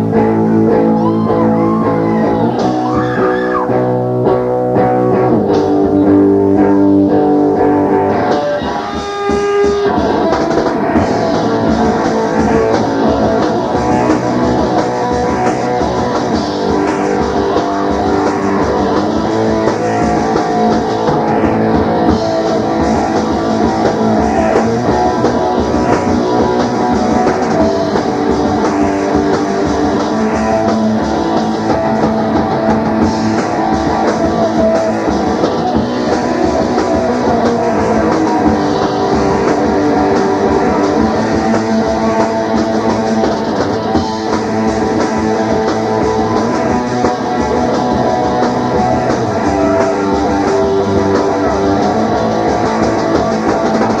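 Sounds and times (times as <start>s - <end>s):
electric guitar chords: 0.0s - 54.0s
rock band playing: 0.0s - 54.0s.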